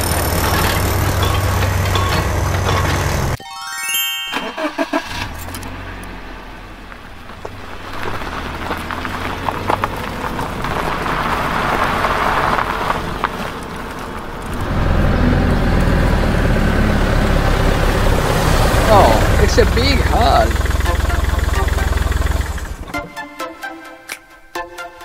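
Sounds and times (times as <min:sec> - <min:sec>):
truck engine running: 0:00.0 - 0:03.4, 0:05.0 - 0:23.0
gravelly crunching: 0:05.2 - 0:16.0.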